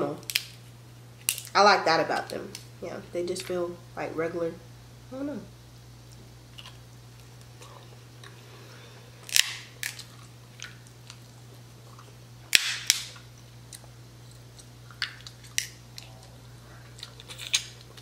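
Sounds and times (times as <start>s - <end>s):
crab shells cracking: 0.2s - 0.6s, 1.2s - 1.6s, 9.2s - 11.4s, 12.5s - 16.1s, 17.0s - 18.0s
chewing: 6.5s - 9.0s, 9.8s - 12.2s, 13.1s - 18.0s.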